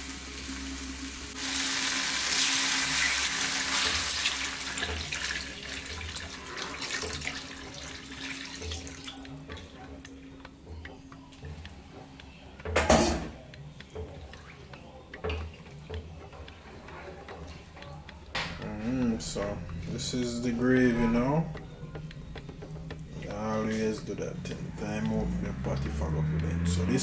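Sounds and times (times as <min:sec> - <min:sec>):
running water hiss: 0:00.0 - 0:09.7.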